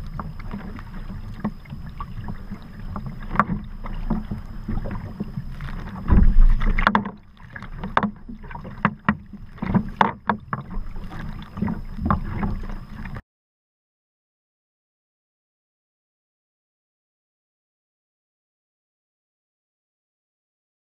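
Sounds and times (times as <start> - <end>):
paddle blades splashing water: 0.0 - 13.2
water sloshing against hull: 0.0 - 13.2
wind buffeting microphone: 1.1 - 7.0.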